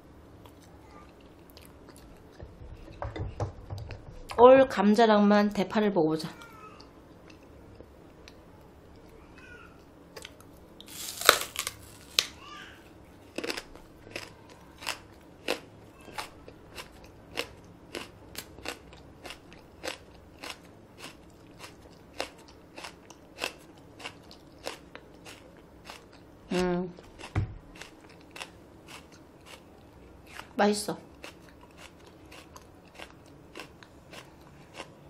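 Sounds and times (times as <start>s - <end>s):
crunchy chewing: 0.4s - 2.4s, 10.2s - 12.3s, 13.2s - 26.3s, 27.0s - 35.0s
green onion crunching bite: 10.2s - 12.4s, 13.3s - 26.2s, 27.0s - 29.7s, 31.1s - 35.0s.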